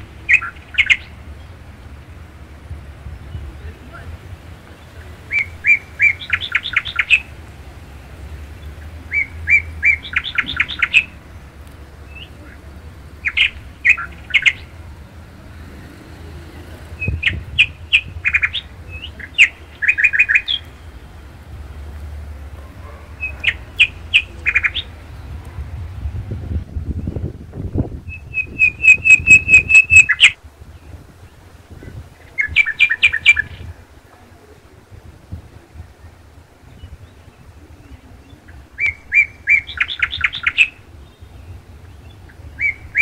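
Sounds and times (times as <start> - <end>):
songbird singing bright notes: 0.0 - 21.4, 22.6 - 26.0, 26.6 - 33.8, 35.8 - 43.0
steady low rumble: 16.4 - 32.6.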